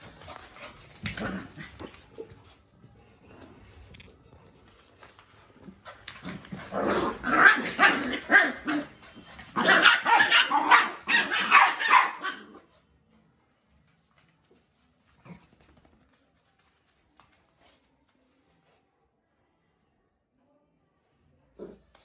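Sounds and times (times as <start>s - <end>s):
puppies barking and growling: 6.0s - 12.7s.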